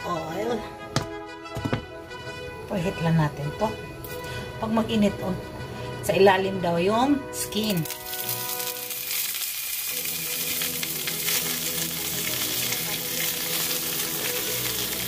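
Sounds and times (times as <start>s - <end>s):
chicken sizzling in oil: 7.7s - 15.0s.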